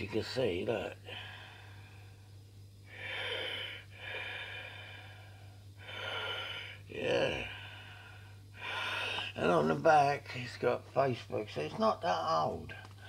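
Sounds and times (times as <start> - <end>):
steady low hum: 0.0 - 13.0
man breathing heavily: 1.0 - 2.3, 2.9 - 9.4.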